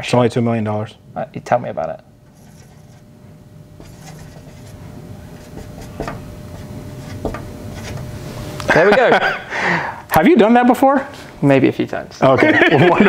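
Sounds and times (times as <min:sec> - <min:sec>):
marker scratching on plastic: 0:02.3 - 0:03.1, 0:03.8 - 0:08.0.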